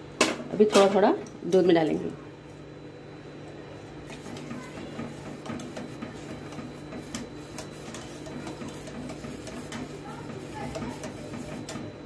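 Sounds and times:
whisk scraping steel saucepan: 4.0 - 12.0.

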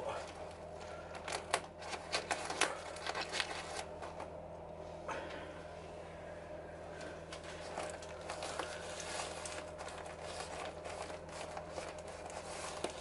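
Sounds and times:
low electrical hum: 0.0 - 13.0
paper and plastic packaging rustling: 0.8 - 4.4, 7.3 - 13.0.

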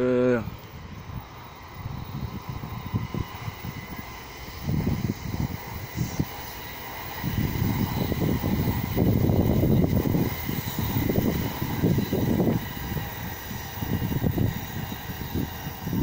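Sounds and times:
high speed train rushing past: 0.0 - 16.0
wind buffeting microphone: 0.4 - 16.0.

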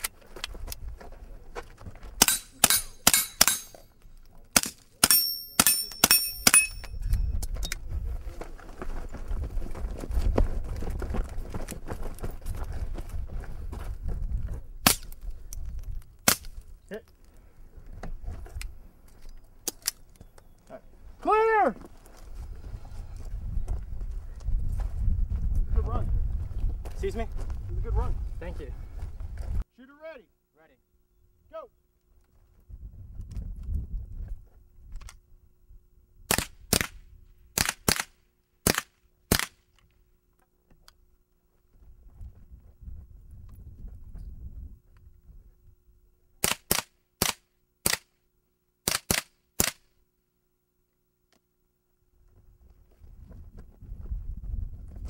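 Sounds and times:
pistol shots: 2.2 - 3.8
sharp gunshots: 2.2 - 3.8, 4.6 - 6.8, 16.2 - 16.5, 36.3 - 37.0, 37.6 - 39.6, 46.4 - 48.1, 48.8 - 49.8.

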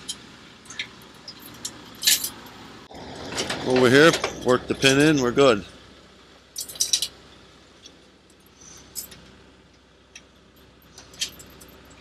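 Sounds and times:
metallic clinks of pin and chain: 1.3 - 2.4.

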